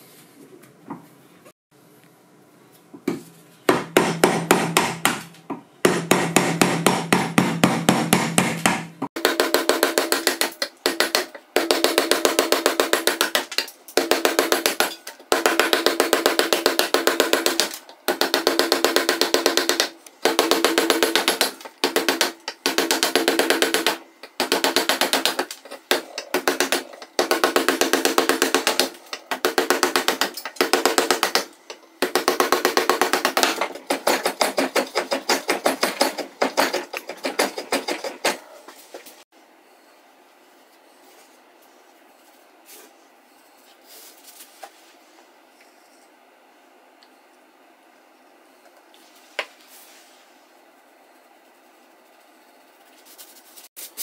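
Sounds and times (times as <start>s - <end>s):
hand tool rasping strokes: 33.3s - 38.5s.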